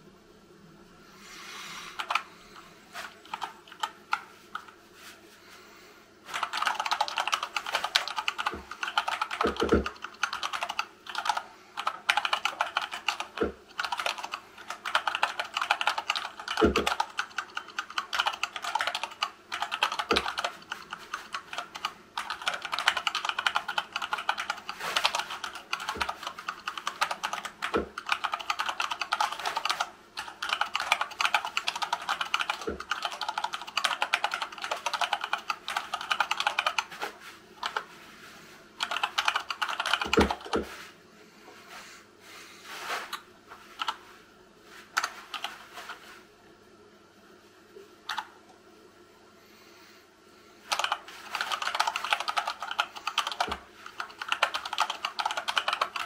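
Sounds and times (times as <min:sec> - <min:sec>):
keyboard keystroke clatter: 0:02.0 - 0:02.2, 0:03.0 - 0:04.7, 0:06.3 - 0:36.9, 0:38.8 - 0:40.7, 0:50.7 - 0:56.0.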